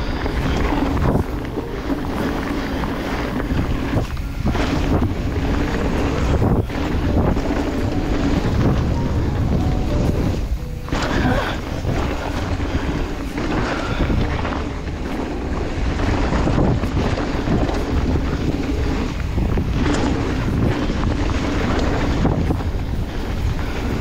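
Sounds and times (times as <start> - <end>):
mountain bike rolling on dirt: 0.0 - 24.0
wind rushing over microphone: 0.0 - 24.0.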